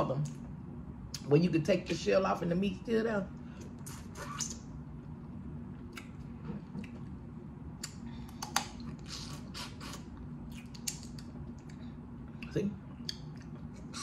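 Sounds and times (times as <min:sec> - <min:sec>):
sucking and chewing: 0:03.6 - 0:04.7, 0:05.7 - 0:14.0.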